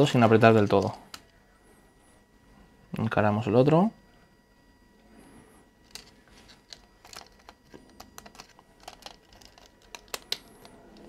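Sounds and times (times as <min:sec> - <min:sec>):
screwdriver clicking on plastic: 0:06.7 - 0:11.0.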